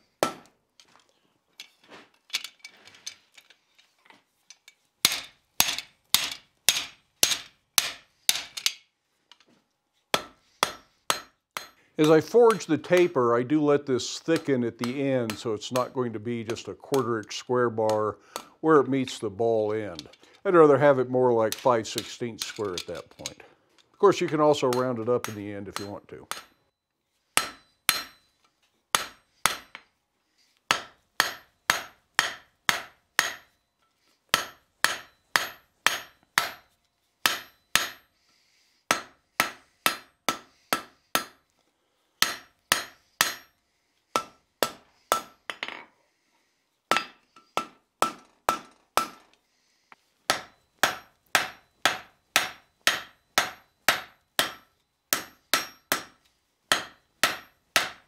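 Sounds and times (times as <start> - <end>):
hammer striking metal on anvil: 0.2 - 0.5, 5.0 - 8.8, 10.1 - 13.1, 24.2 - 26.6, 27.4 - 29.8, 30.7 - 33.6, 34.3 - 38.1, 38.9 - 41.4, 42.2 - 45.8, 46.9 - 49.2, 50.3 - 58.0.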